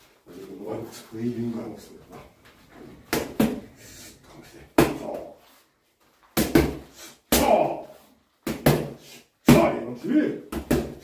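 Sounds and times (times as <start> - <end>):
boxing gloves smacking mitts: 3.0 - 3.8, 4.6 - 5.4, 6.3 - 9.8, 10.5 - 11.0.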